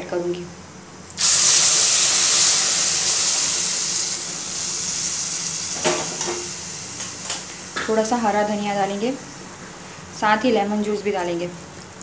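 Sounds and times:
water hissing in hot pan: 0:01.2 - 0:09.2.

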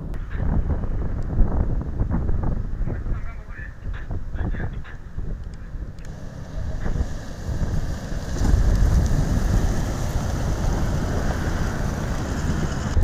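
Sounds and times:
wind buffeting microphone: 0:00.0 - 0:13.0
car driving past: 0:06.1 - 0:13.0.

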